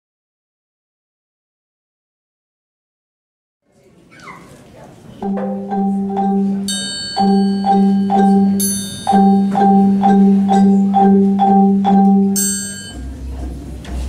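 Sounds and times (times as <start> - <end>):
high bell-like notes: 5.2 - 13.2
xylophones playing low pattern: 5.2 - 13.4.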